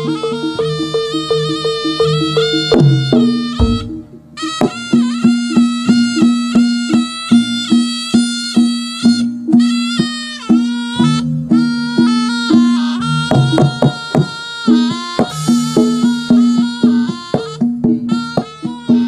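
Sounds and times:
wind instrument melody: 0.0s - 19.0s
drum strokes: 1.8s - 5.5s, 9.1s - 19.0s
low thump: 3.6s - 4.1s.

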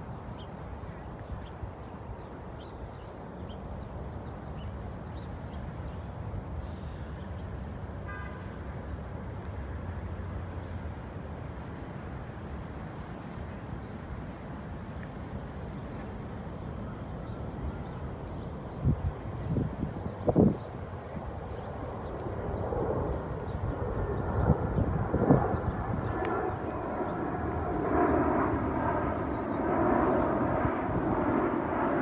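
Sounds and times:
distant city traffic rumble: 1.8s - 32.0s.

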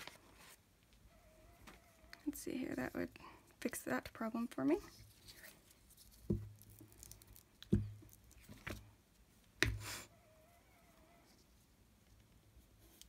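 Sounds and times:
paper rustle: 4.8s - 7.4s.

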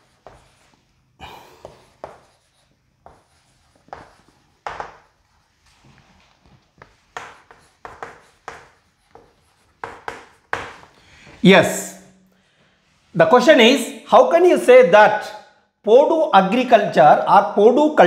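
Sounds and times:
chalk writing on a chalkboard: 0.0s - 0.9s, 1.6s - 11.0s.

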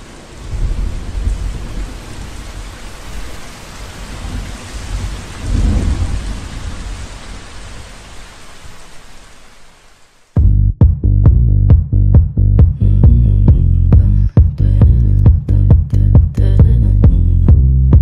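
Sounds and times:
low rolls of thunder: 0.0s - 8.1s
steady rain falling: 0.0s - 10.4s.

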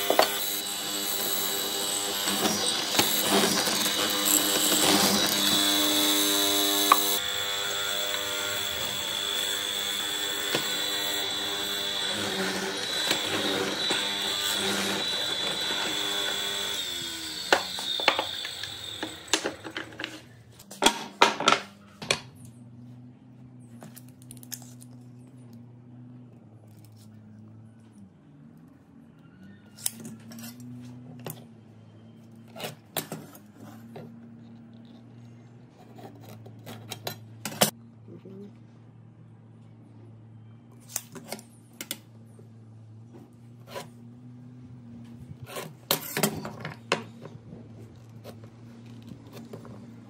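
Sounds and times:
power tool motor running: 0.0s - 20.3s.

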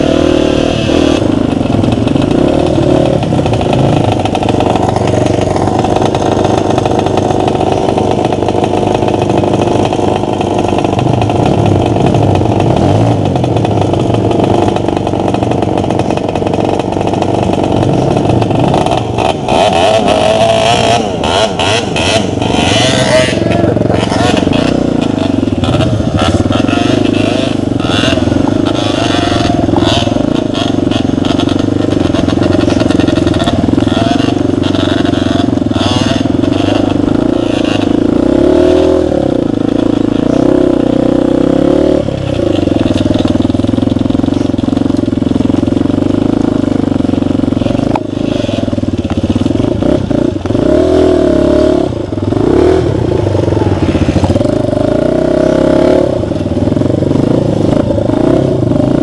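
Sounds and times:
motorbike engine revving: 0.0s - 59.0s
bike rattling over rough ground: 1.2s - 38.6s, 39.4s - 50.6s.

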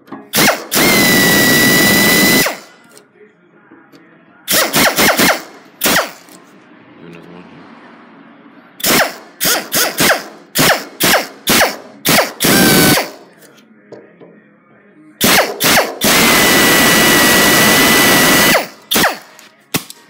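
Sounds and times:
power drill bursts: 0.4s - 2.7s, 8.8s - 13.2s, 15.2s - 19.3s.

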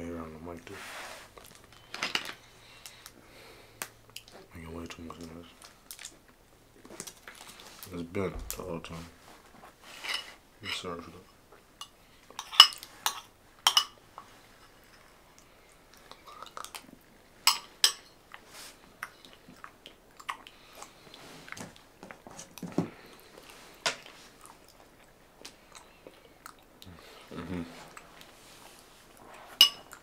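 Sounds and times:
person chewing food: 5.6s - 7.9s, 14.0s - 30.0s
cutlery clinking on a dish: 17.5s - 18.1s, 29.6s - 30.0s.

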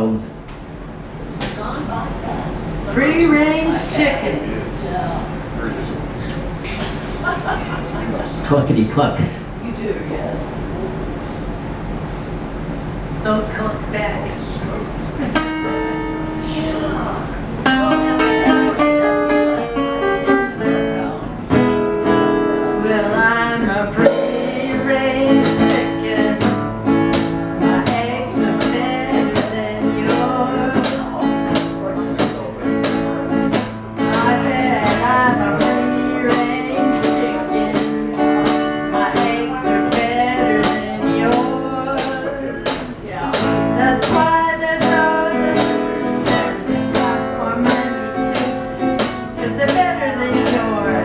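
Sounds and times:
acoustic guitar: 1.2s - 9.9s, 10.6s - 51.0s
drum kit: 24.0s - 51.0s.

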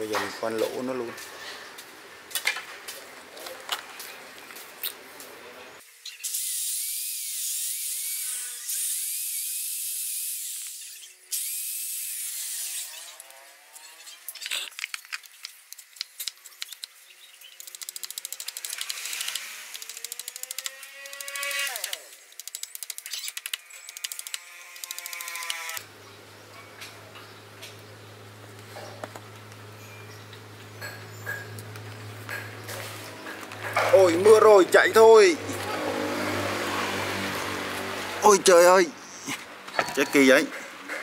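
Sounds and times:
electric drill boring: 6.3s - 13.2s, 17.7s - 25.8s.

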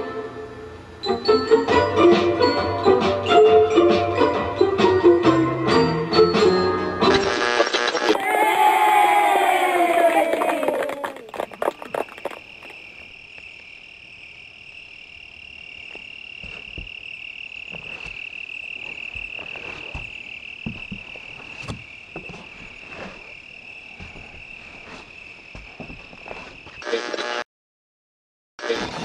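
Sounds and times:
insects droning: 7.3s - 27.4s.

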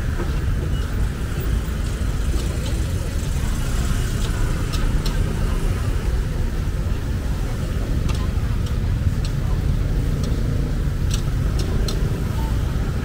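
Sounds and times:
vehicles passing with low rumble: 0.0s - 13.0s
faint clicks and ticks: 4.1s - 5.4s, 7.8s - 12.4s.

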